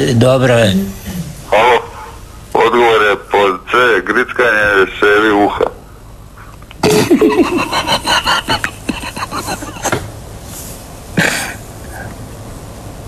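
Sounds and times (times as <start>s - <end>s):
person coughing: 6.8s - 7.2s, 11.2s - 12.1s
person laughing: 6.8s - 10.1s.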